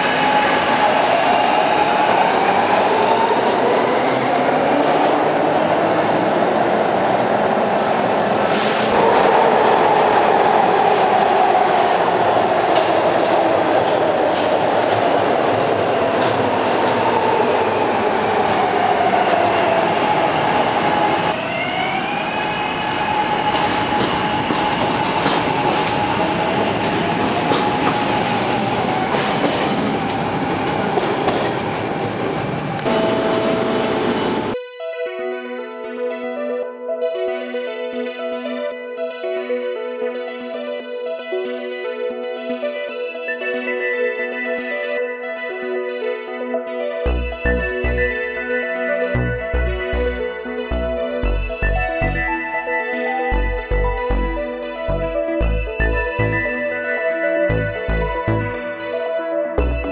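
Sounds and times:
train wheels rumbling on rails: 8.4 - 33.0.

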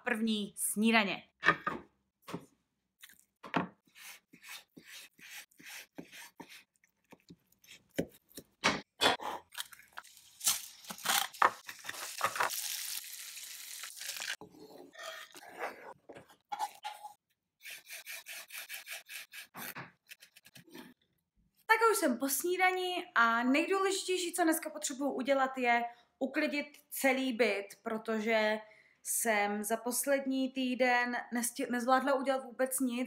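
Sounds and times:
knife cutting on wooden board: 3.8 - 8.5.

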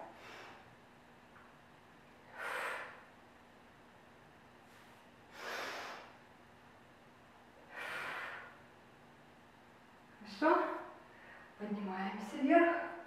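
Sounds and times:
woman exhaling forcefully: 2.3 - 3.1, 5.4 - 6.1, 7.7 - 8.6.

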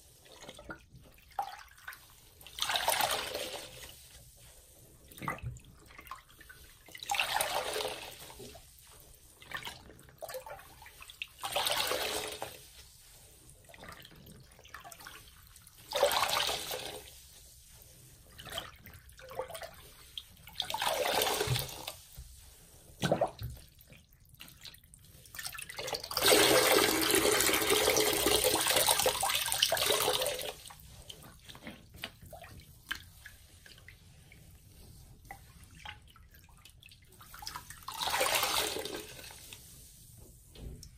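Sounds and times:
water gushing from squeezed sponge: 0.0 - 40.4
water drips and splashes: 18.3 - 40.9.

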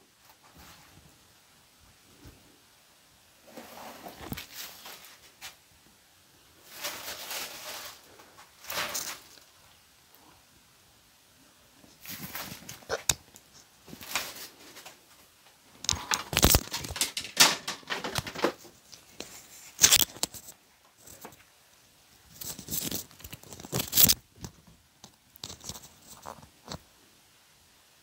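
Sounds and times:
nylon and plastic sheet crinkling: 6.6 - 9.5, 11.9 - 21.4, 22.3 - 24.6.

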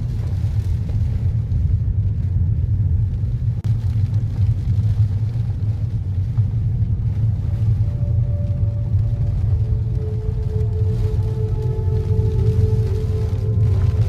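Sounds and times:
car engine: 0.0 - 14.0
tyres on wet road: 0.0 - 14.0.

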